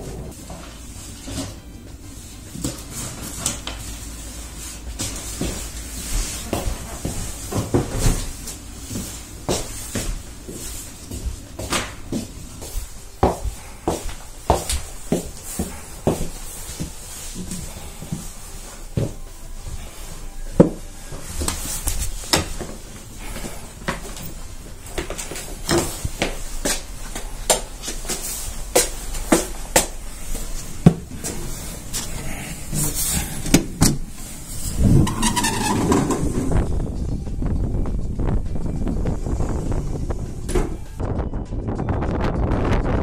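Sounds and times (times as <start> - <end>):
footsteps on wooden floor: 4.7 - 19.9, 20.6 - 36.4.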